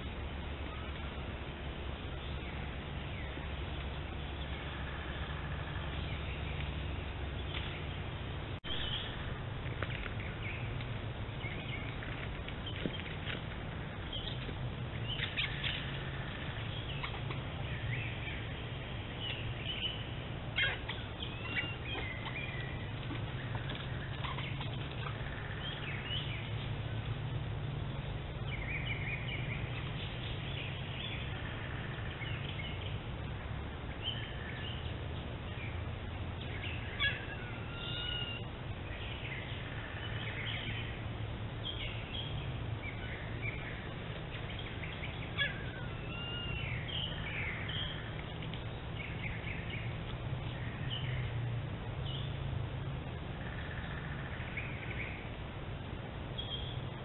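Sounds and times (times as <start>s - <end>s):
small birds chirping: 0.0s - 55.5s, 56.2s - 57.0s
steady low hum: 0.0s - 57.0s.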